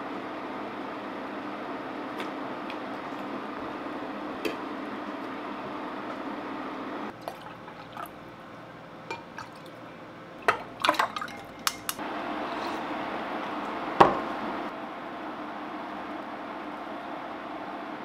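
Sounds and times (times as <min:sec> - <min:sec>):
induction cooktop hum: 0:00.0 - 0:18.0
drink pouring into a glass: 0:07.1 - 0:08.3.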